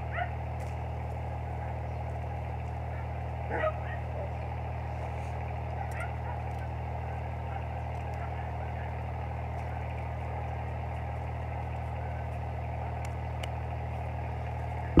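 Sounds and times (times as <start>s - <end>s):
low mechanical hum: 0.0s - 15.0s
faint clicks: 5.4s - 6.7s, 13.0s - 13.6s.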